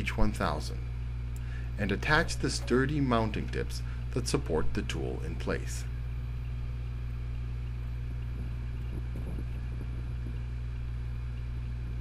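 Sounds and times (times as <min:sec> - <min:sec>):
low rumble: 0:05.8 - 0:12.0.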